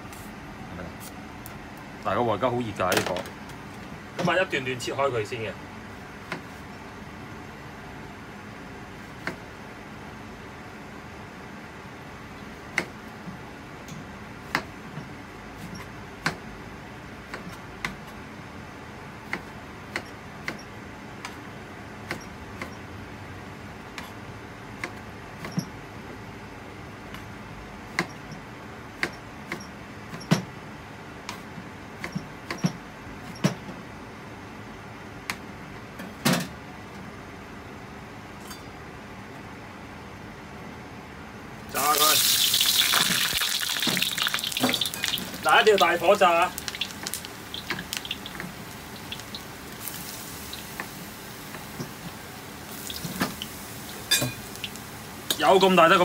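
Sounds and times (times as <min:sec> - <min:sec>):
steady background hiss: 0:41.2 - 0:56.0.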